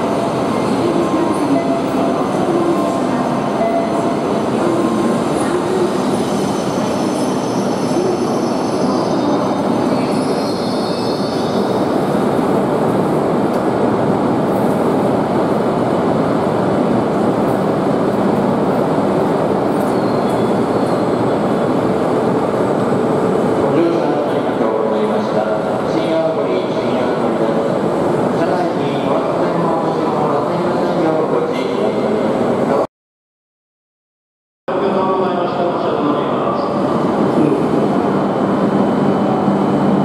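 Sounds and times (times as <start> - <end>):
faint high brake squeal: 19.8 - 21.2.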